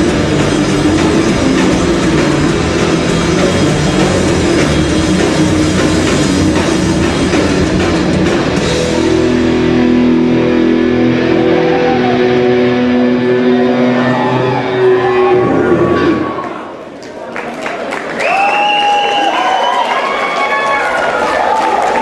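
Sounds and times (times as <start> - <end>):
heavy rock band playing: 0.0 - 16.4.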